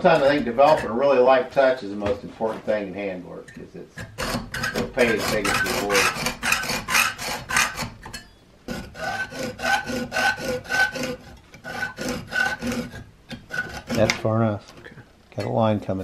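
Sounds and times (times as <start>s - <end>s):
hacksaw cutting metal: 0.0s - 1.0s, 4.0s - 14.3s.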